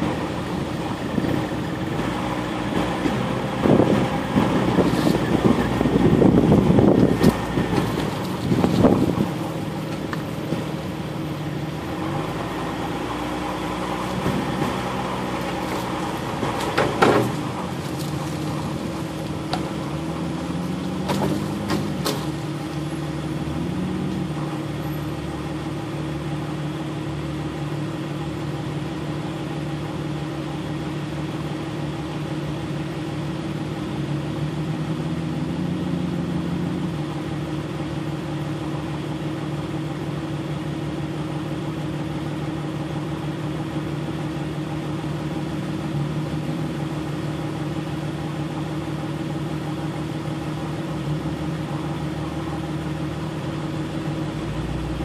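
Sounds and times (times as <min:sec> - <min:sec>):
vehicle engine running: 0:00.0 - 0:55.0
vehicle rumbling and jostling: 0:00.0 - 0:55.0
sharp knocks from vehicle body: 0:15.5 - 0:18.2, 0:21.0 - 0:22.5.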